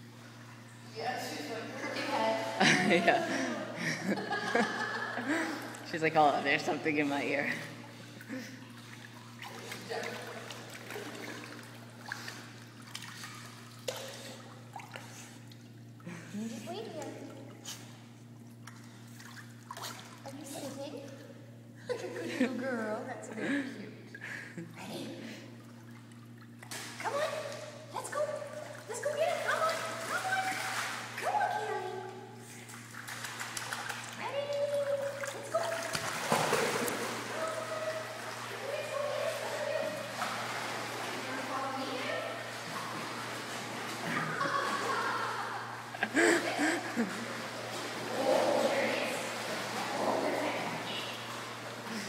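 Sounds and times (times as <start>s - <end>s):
steady low hum: 0.0s - 52.0s
water splashing and trickling: 8.2s - 16.0s, 25.6s - 31.8s, 32.5s - 46.3s.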